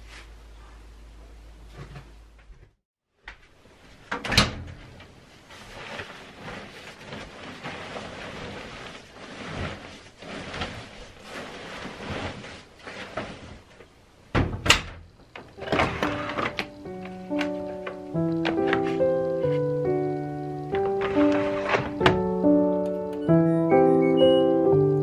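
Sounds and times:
dryer door shutting: 4.1 - 5.0, 14.3 - 19.0, 20.8 - 22.5
duvet rustling and swishing: 5.2 - 13.9.

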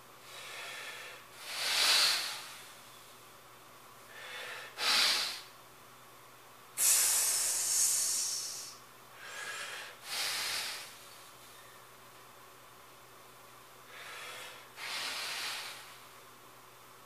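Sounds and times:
forceful hissing breaths: 0.2 - 2.9, 4.1 - 5.6, 6.8 - 11.2, 13.8 - 16.2.

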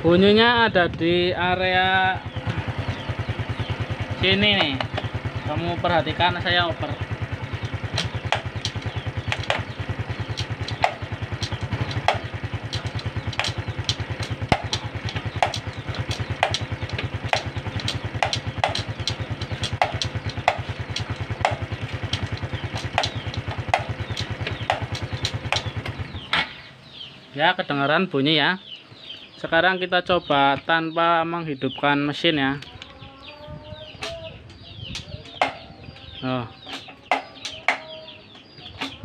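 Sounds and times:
motorcycle engine idling: 0.0 - 39.0
gear pedal clacking: 2.3 - 26.6.

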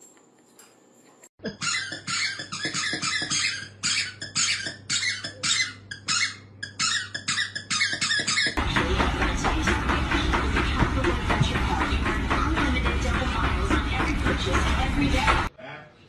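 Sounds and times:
squeaky dog toy squeaking: 1.4 - 8.6
music: 8.6 - 15.5.

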